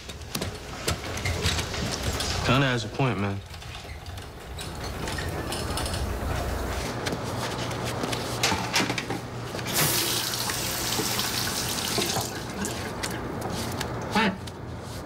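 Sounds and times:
water running from a tap: 0:09.7 - 0:12.8.

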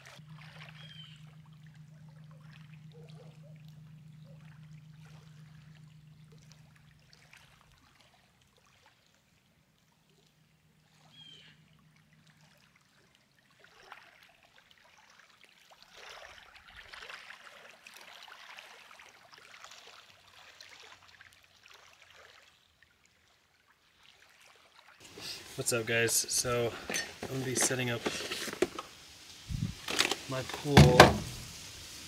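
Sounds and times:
faint lake water lapping: 0:00.0 - 0:32.0.

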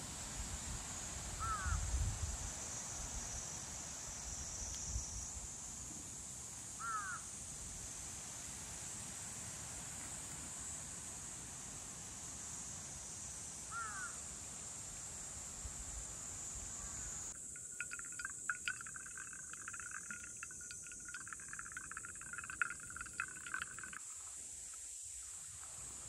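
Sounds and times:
high insect buzz: 0:15.9 - 0:24.8
coffee dripping into glass: 0:17.4 - 0:24.3.

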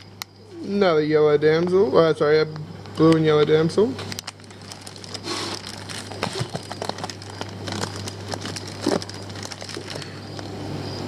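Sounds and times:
steady low hum: 0:00.0 - 0:11.0
plastic bags crinkling: 0:04.0 - 0:10.5.

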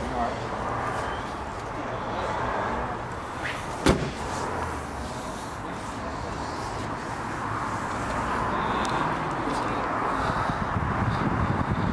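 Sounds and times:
steady background noise: 0:00.0 - 0:11.9
car bonnet slamming: 0:03.8 - 0:04.2.

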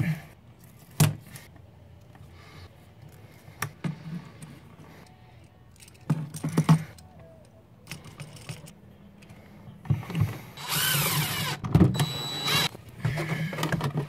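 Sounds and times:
cordless driver whining: 0:10.6 - 0:12.7.

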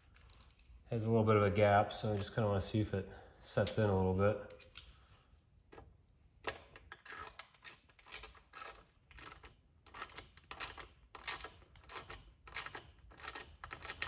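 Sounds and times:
hand ratchet clicking: 0:06.4 - 0:14.0.

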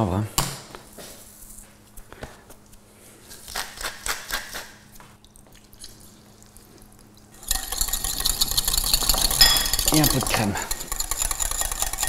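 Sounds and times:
pepper mill grinding: 0:07.4 - 0:12.0
wire whisk beating in glass bowl: 0:07.4 - 0:12.0.

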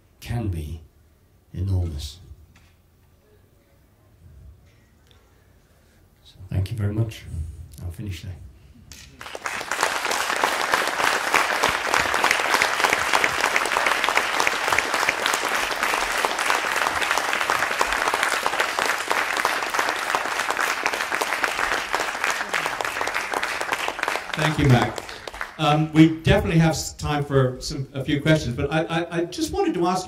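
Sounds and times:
audience applauding: 0:09.2 - 0:25.9.

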